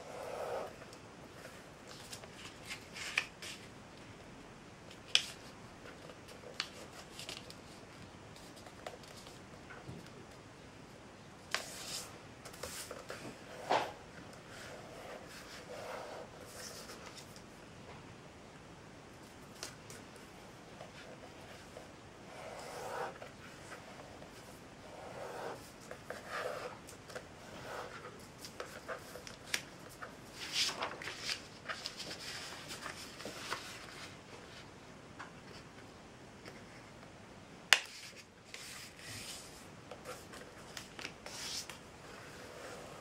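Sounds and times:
paper rustling as it is folded: 1.4 - 3.7, 5.0 - 9.6, 25.5 - 34.7.

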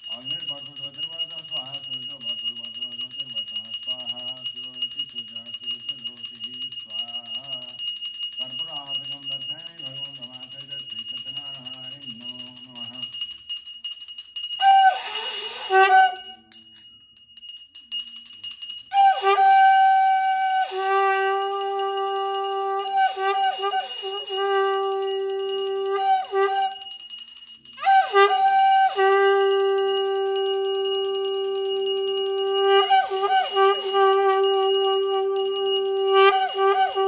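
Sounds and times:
hand bell ringing: 0.0 - 37.0
conch shell blast: 14.6 - 16.6, 18.9 - 27.0, 27.8 - 37.0
low voice chanting: 19.0 - 26.7.

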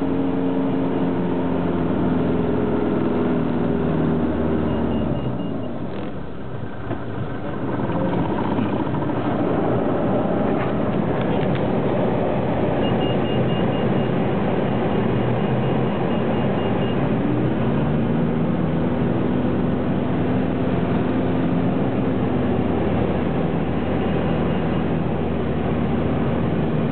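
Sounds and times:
light aircraft engine and propeller: 0.0 - 26.9
high pulsing beep: 4.6 - 5.8, 12.8 - 14.2, 14.9 - 17.1.

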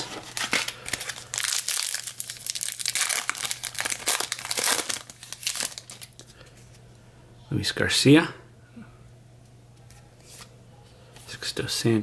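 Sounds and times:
wrapper crinkling and tearing: 0.0 - 6.3.

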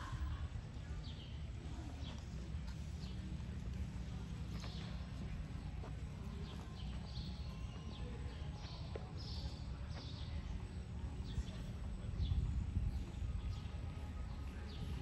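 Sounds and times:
steady low rumble: 0.0 - 15.0
hoof steps on dirt: 1.9 - 10.6.

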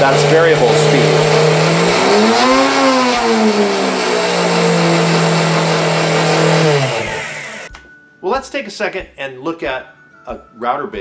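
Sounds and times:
router motor whine: 0.0 - 7.7.

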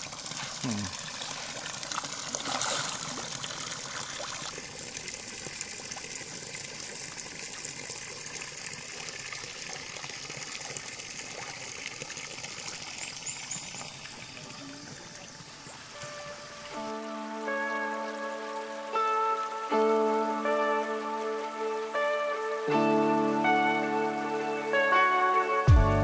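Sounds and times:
water splash: 0.0 - 4.6
water trickling and lapping: 0.0 - 23.6.

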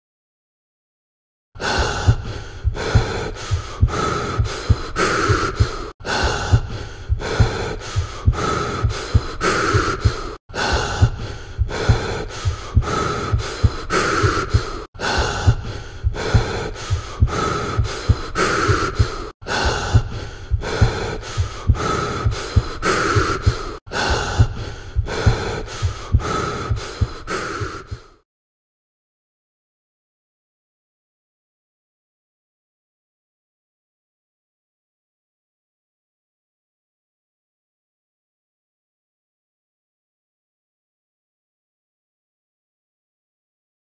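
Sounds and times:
person breathing heavily: 1.6 - 28.2.

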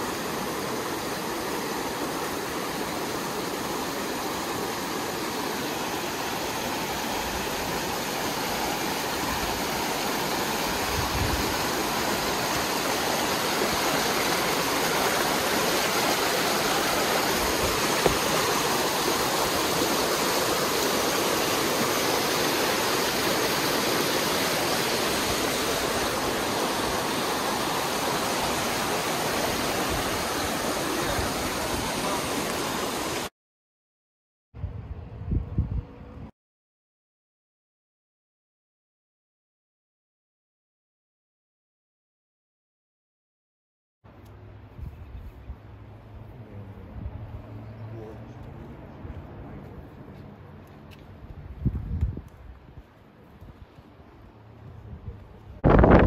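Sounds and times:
creek rushing over rocks: 0.0 - 33.3.

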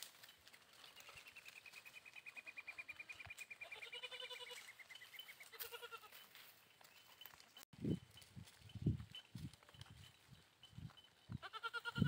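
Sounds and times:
goat bleating: 2.3 - 4.8, 5.4 - 6.3, 11.4 - 12.0.

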